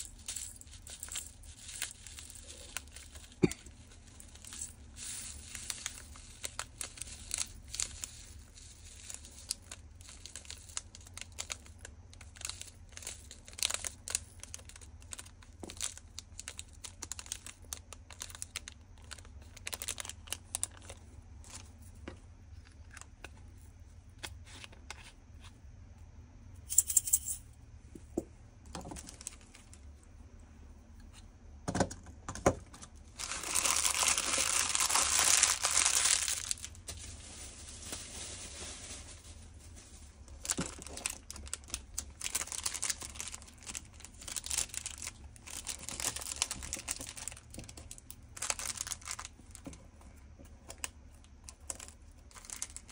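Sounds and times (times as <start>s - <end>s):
plastic bags crackling: 0.0s - 21.8s, 28.8s - 29.8s, 33.1s - 49.8s, 51.4s - 52.9s
plastic bags crumpling: 0.0s - 21.8s, 28.8s - 29.8s, 33.1s - 49.8s, 50.7s - 52.9s
plastic bag rustle: 0.0s - 22.0s, 28.8s - 29.8s, 33.1s - 49.8s, 51.6s - 52.9s.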